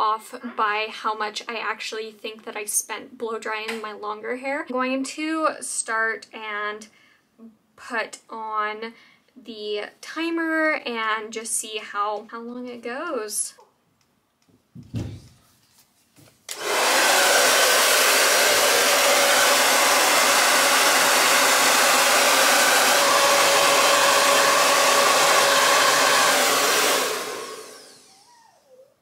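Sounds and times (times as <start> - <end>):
hair dryer blowing: 16.5 - 28.8.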